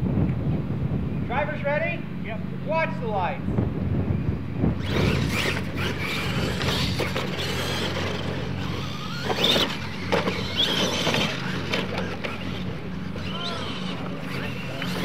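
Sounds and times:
steady low hum: 0:00.0 - 0:15.0
trucks landing thumps: 0:04.7 - 0:13.3
toy truck motors whining: 0:04.8 - 0:15.0.

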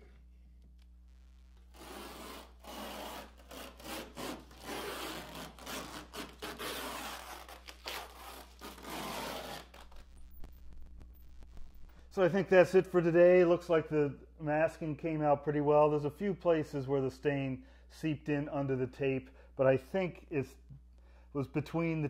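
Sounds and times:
masking tape peeling: 0:01.6 - 0:11.8.

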